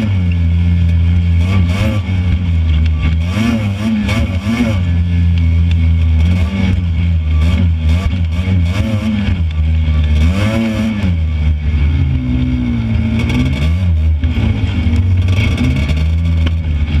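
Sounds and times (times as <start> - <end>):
buggy engine revving: 0.0 - 17.0.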